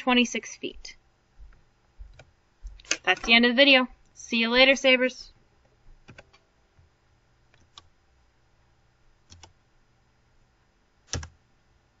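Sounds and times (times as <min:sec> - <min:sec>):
computer mouse clicks: 0:06.0 - 0:06.4, 0:07.5 - 0:07.9, 0:09.3 - 0:09.6, 0:11.1 - 0:11.4.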